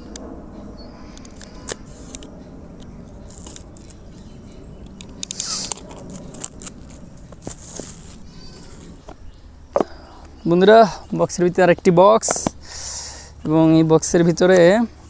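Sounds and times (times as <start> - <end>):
packaging being opened: 3.1 - 4.0, 4.8 - 9.2
rustling scrape: 5.0 - 9.2.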